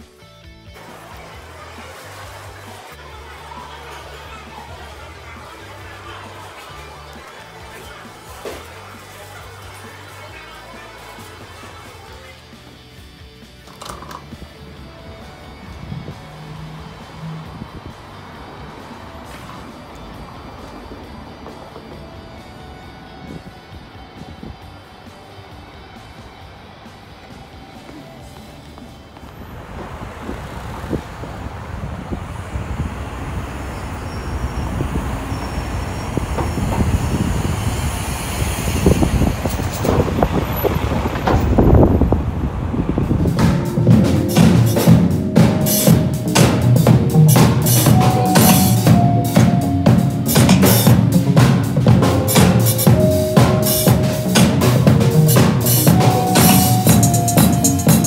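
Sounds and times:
city street traffic rumble: 0.0 - 58.0
drum kit playing fast beat: 43.2 - 58.0.

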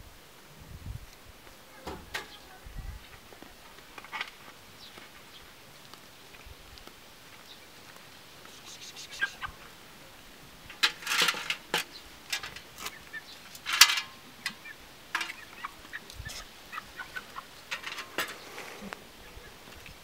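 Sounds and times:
chickens clucking: 8.4 - 9.8, 10.6 - 20.0
metal bowls clinking on rock: 10.7 - 12.7, 13.6 - 15.5, 17.7 - 18.4.

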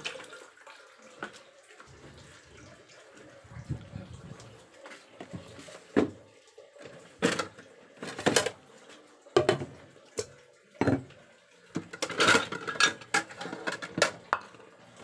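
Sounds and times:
dishes and utensils clinking: 7.2 - 8.6, 11.7 - 14.6.

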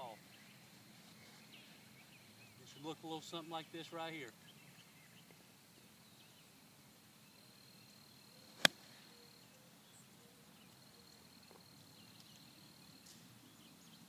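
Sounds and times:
faint outdoor background: 0.0 - 14.0
golf club striking sand: 8.6 - 8.9.

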